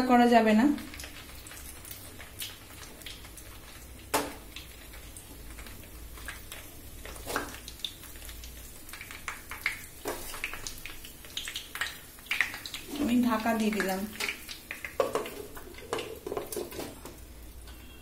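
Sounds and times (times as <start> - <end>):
food sizzling in oil: 0.0 - 18.0
oil popping and clicking: 0.9 - 12.9, 13.6 - 17.2.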